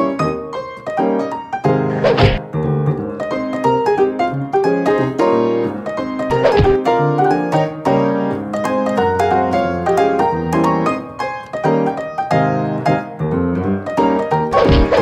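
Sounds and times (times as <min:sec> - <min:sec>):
brisk piano music: 0:00.0 - 0:15.0.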